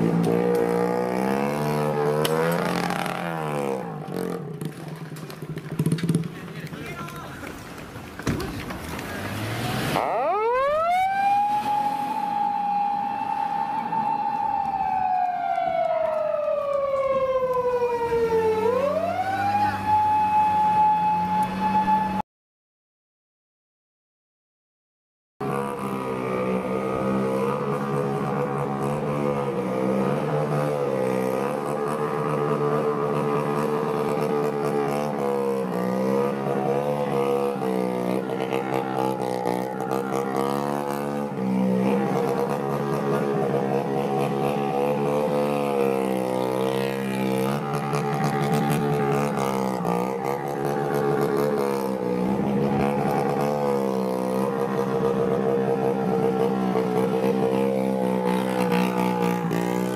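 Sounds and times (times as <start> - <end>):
minibike engine revving: 0.0 - 7.1, 8.3 - 12.9, 25.4 - 59.9
police siren wailing: 9.9 - 22.2, 26.9 - 59.9.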